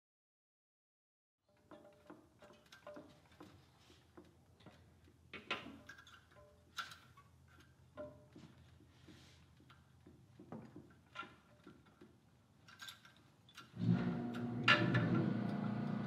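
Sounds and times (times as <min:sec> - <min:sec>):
metallic clicks and clinks: 0:10.7 - 0:13.8.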